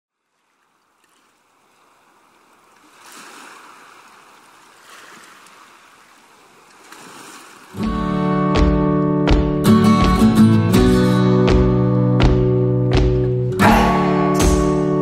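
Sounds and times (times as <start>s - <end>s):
sea waves washing in: 0.5s - 8.4s.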